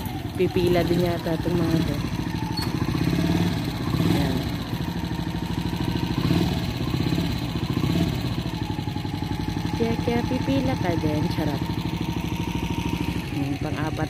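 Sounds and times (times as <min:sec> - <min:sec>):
motorcycle engine puttering: 0:00.0 - 0:14.0.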